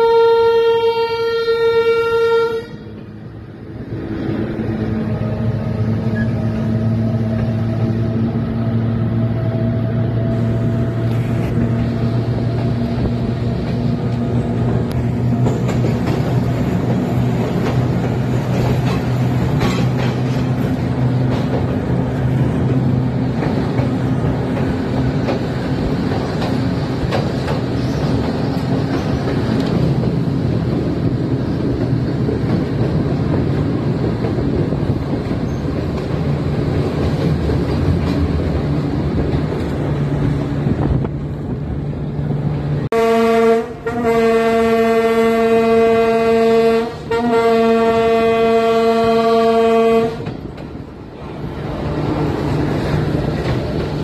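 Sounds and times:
locomotive horn: 0.0 - 3.0, 42.9 - 50.4
train rumble: 0.0 - 54.0
rail clicks: 2.8 - 42.9, 43.5 - 54.0.

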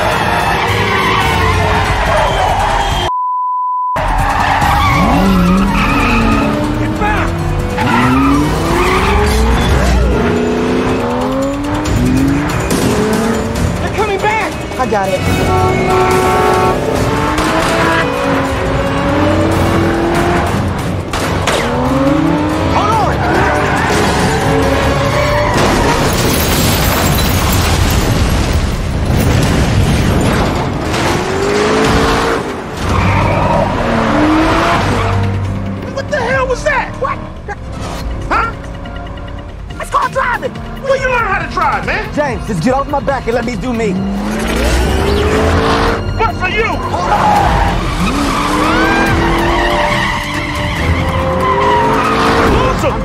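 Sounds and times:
tires squealing: 0.0 - 3.1, 4.0 - 14.5, 15.2 - 27.6, 30.8 - 53.0
tyres squealing: 4.0 - 10.5, 32.8 - 38.6, 43.8 - 53.0
car engine accelerating: 4.1 - 25.6, 30.6 - 46.2, 46.8 - 53.0.

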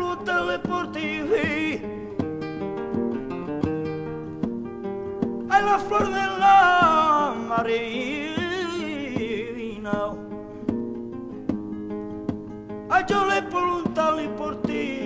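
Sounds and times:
acoustic guitar chords: 0.0 - 15.0.

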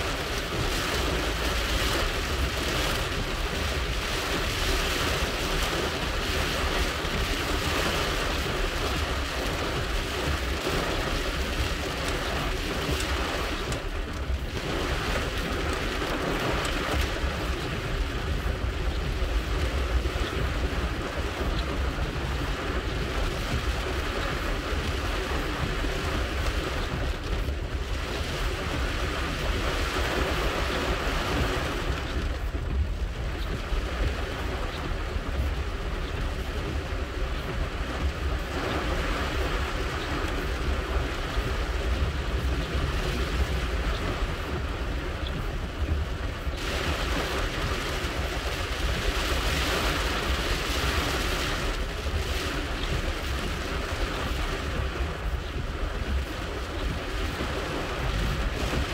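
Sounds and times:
car driving on wet road: 0.0 - 58.9
heavy rain on car roof: 0.0 - 58.9.

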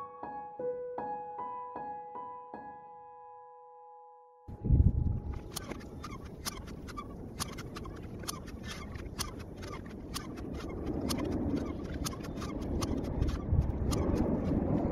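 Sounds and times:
low rumble: 4.5 - 14.9
sharp irregular clicks: 5.3 - 14.9.

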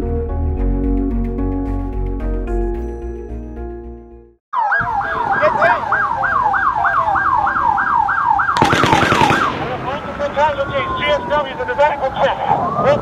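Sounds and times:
background music: 0.0 - 5.0
emergency siren yelping: 4.5 - 13.0
sharp cracks: 8.6 - 10.3.

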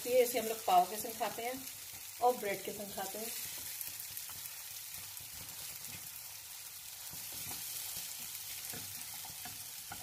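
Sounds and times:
masala sizzling in a frying pan: 0.0 - 10.0
spatula scraping a pan: 7.0 - 10.0.

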